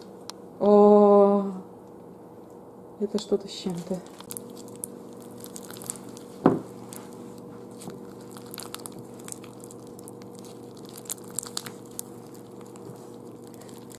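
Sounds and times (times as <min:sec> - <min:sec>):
slime crackling and popping: 0:03.9 - 0:13.9
thump: 0:06.4 - 0:06.7.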